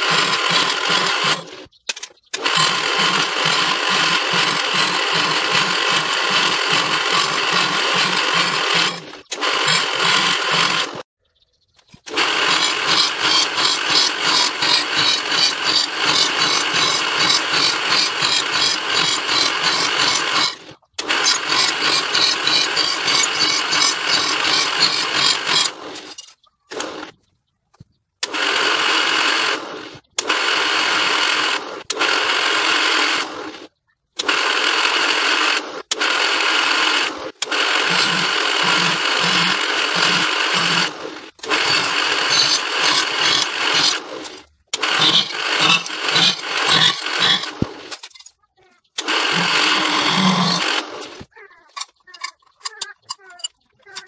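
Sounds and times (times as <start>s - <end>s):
drill boring into steel plate: 0.0s - 1.7s, 2.3s - 11.1s, 12.0s - 27.1s, 28.2s - 33.6s, 34.2s - 48.1s, 49.0s - 51.3s.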